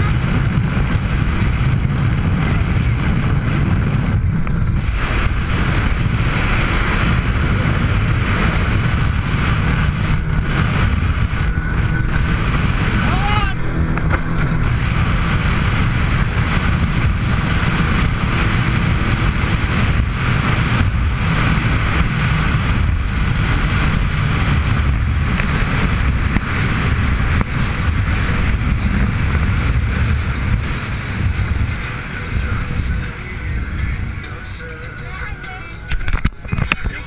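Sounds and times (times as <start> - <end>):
speedboat engines droning: 0.0 - 37.0
wind and water rushing: 0.0 - 37.0.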